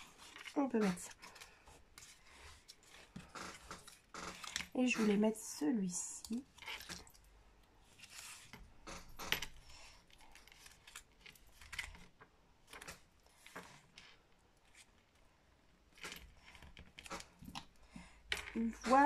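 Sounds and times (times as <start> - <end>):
paper and cardboard rustling: 0.0 - 5.4, 7.8 - 15.2.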